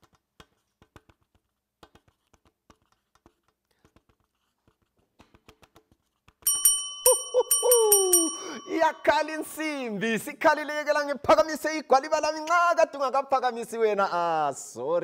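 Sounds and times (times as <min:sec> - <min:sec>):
bell ringing: 0:06.5 - 0:09.9.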